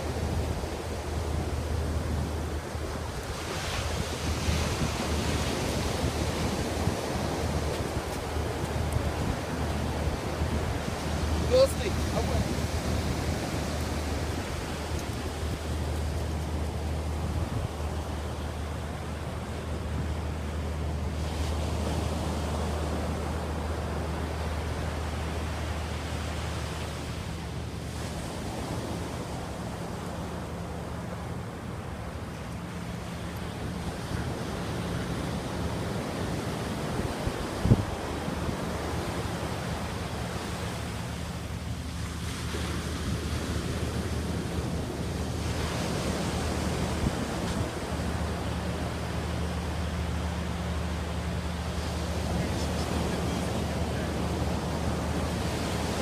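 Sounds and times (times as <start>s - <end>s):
ocean surf washing in: 0.0s - 56.0s
steady low rumble: 0.0s - 56.0s.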